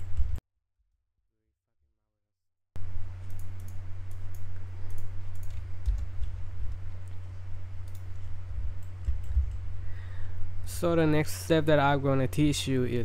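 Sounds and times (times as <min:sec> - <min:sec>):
low electrical hum: 0:00.0 - 0:00.4, 0:02.8 - 0:13.0
computer mouse clicks: 0:03.2 - 0:08.2, 0:08.8 - 0:09.6
dull low thumps: 0:08.5 - 0:09.7.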